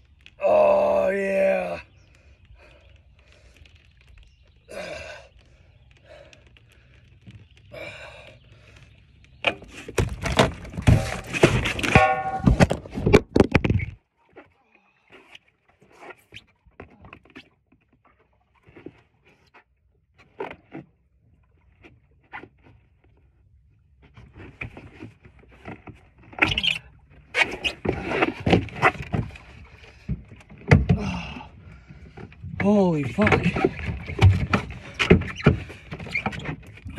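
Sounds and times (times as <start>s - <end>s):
thudding against boat: 9.4s - 13.9s, 32.2s - 36.9s.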